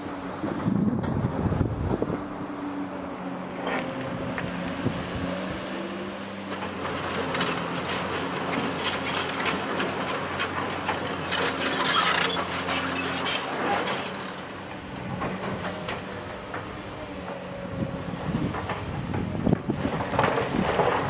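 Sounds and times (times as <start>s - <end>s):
diesel engine hum: 0.0s - 21.0s
excavator clanks and rattles: 0.0s - 21.0s.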